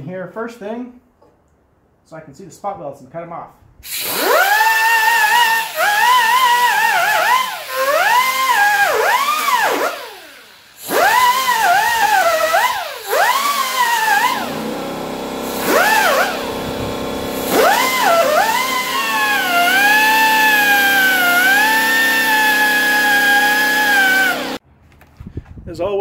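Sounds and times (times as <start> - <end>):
die grinder whining on metal: 3.9 - 24.6.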